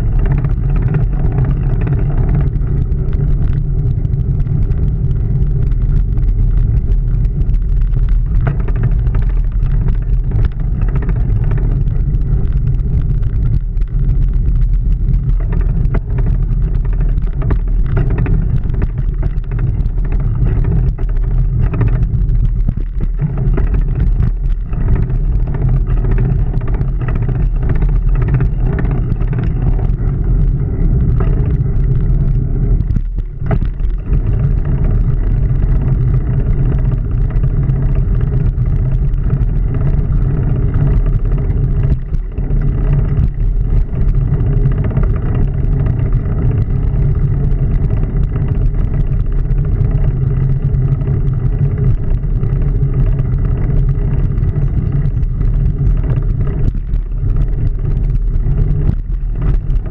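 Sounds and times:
bicycle riding rumble: 0:00.0 - 0:59.9
bike rattles and knocks: 0:00.0 - 0:59.9.

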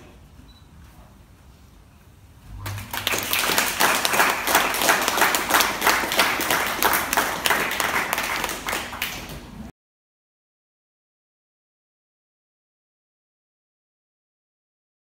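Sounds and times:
audience applauding: 0:02.5 - 0:09.7.

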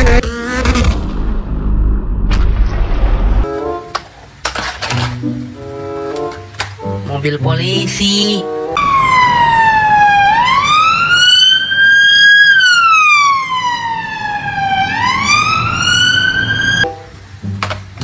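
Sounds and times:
police siren wailing: 0:08.8 - 0:16.9.

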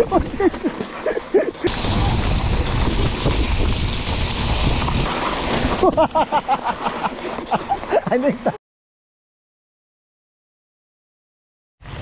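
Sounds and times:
low rumble of bike tyres: 0:00.0 - 0:08.2
wind rushing over microphone: 0:01.7 - 0:06.3.

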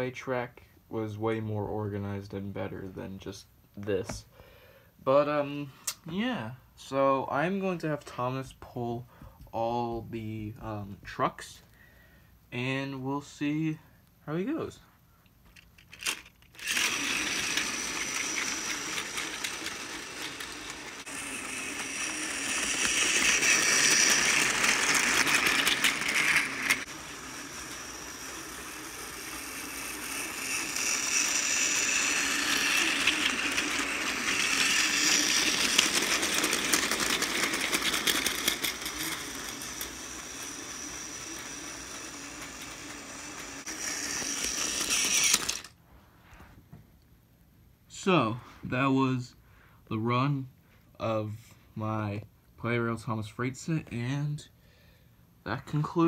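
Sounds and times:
toy train motor whirring: 0:15.6 - 0:45.8
plastic trucks rattling on track: 0:15.9 - 0:26.9, 0:31.0 - 0:45.7.

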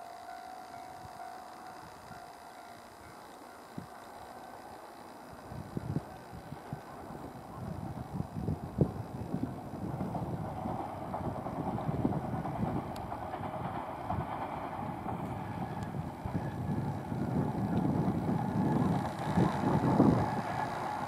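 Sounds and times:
electric train passing: 0:00.0 - 0:21.0
wind buffeting microphone: 0:05.4 - 0:21.0.

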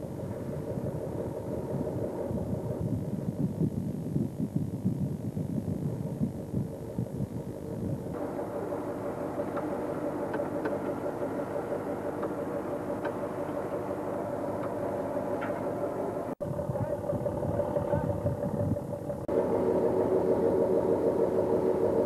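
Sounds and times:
wind buffeting microphone: 0:00.0 - 0:08.8, 0:12.5 - 0:19.3
boat engine humming: 0:00.0 - 0:22.0.

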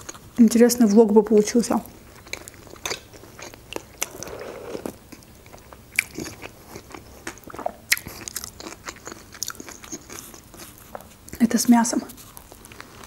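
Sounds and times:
wet mouth clicks and chewing: 0:02.1 - 0:04.1, 0:05.1 - 0:11.4.

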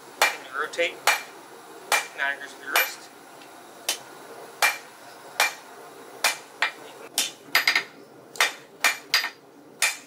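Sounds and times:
hammer striking steel on anvil: 0:01.9 - 0:02.2, 0:02.8 - 0:03.0, 0:05.4 - 0:05.6, 0:06.2 - 0:10.0.

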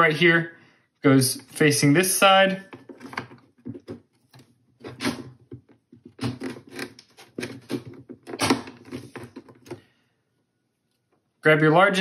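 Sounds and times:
plastic parts scraping and clicking: 0:02.6 - 0:09.9.

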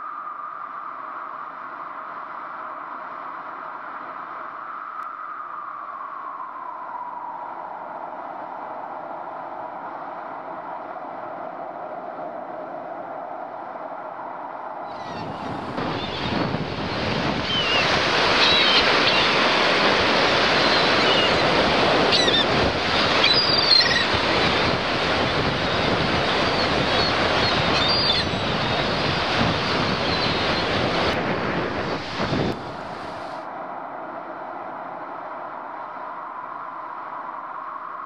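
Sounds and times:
loud steady rushing noise: 0:10.4 - 0:36.2.

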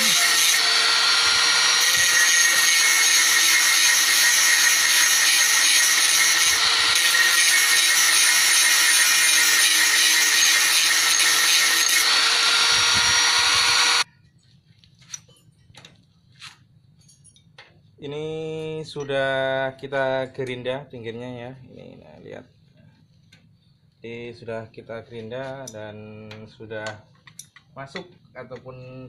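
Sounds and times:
angle grinder grinding metal: 0:00.0 - 0:14.1
faint clicks of parts handled: 0:14.4 - 0:17.8.

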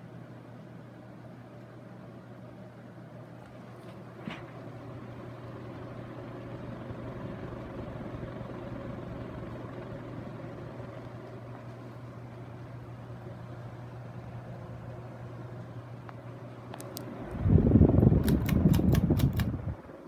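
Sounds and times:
ceiling fan motor hum: 0:00.0 - 0:20.0
fan blades whooshing: 0:03.6 - 0:20.0.

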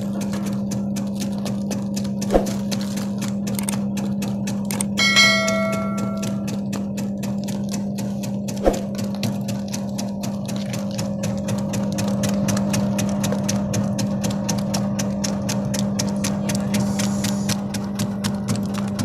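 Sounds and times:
fast ticking: 0:00.0 - 0:19.0
slicing machine motor hum: 0:00.0 - 0:19.0
bell-like chime: 0:05.0 - 0:06.5
sharp knocks: 0:05.0 - 0:06.5.

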